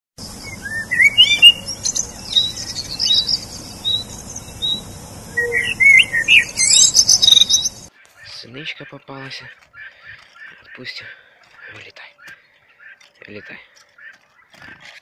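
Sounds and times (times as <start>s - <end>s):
songbird singing: 0.2s - 15.0s.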